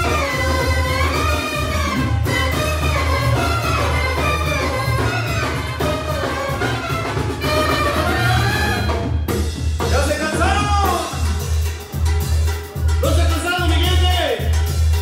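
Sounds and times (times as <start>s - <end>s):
loud dance music: 0.0s - 6.4s, 9.9s - 15.0s.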